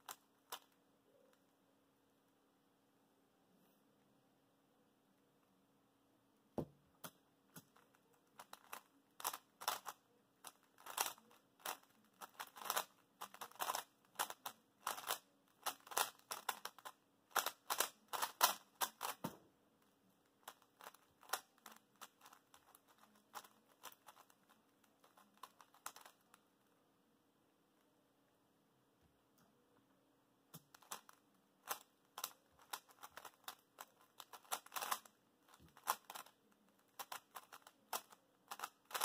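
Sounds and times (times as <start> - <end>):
plastic cube clicks and clacks: 7.0 - 19.4, 20.4 - 26.3, 30.6 - 39.0.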